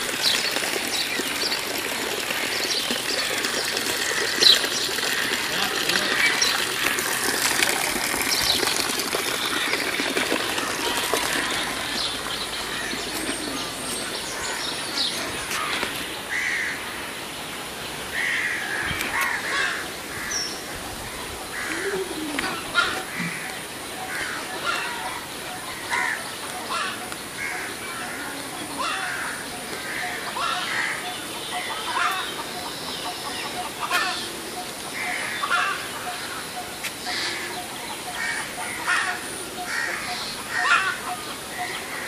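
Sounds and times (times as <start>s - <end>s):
steady outdoor hiss: 0.0s - 42.0s
crows cawing: 3.2s - 7.2s, 12.7s - 13.6s, 15.4s - 17.0s, 18.1s - 20.5s, 21.4s - 36.4s, 37.0s - 42.0s.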